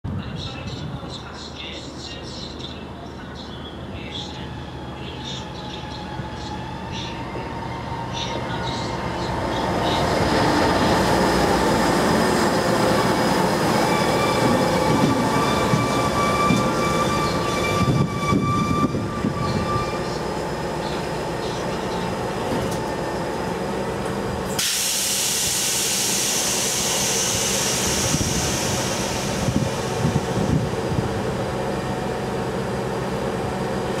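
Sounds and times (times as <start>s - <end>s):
diesel rail machine running: 0.1s - 34.0s
high squealing wheels: 13.3s - 20.3s
loud air hiss: 24.5s - 30.4s.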